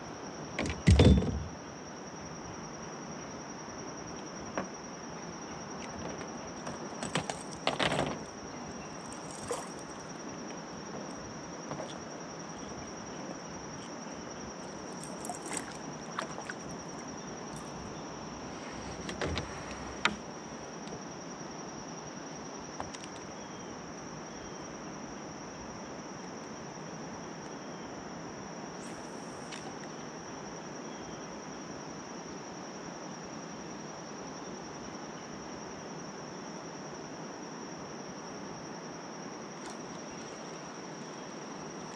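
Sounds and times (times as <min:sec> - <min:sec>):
insects droning: 0:00.0 - 0:41.9
gear knocking in kayak: 0:00.6 - 0:01.6, 0:05.8 - 0:10.0.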